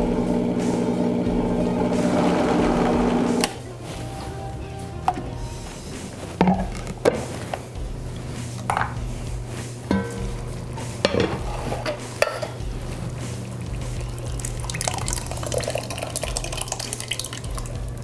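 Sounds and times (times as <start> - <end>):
pot lid clanking: 8.6 - 9.0, 9.9 - 12.6
lid knocks: 8.7 - 9.0, 9.9 - 12.6
puree pouring into pot: 13.1 - 18.0.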